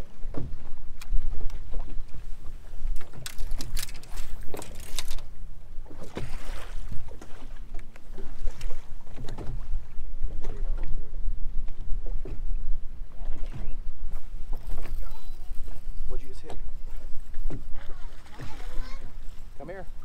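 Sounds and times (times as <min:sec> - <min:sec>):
water slapping against boat hull: 0:00.0 - 0:11.0, 0:15.6 - 0:19.4.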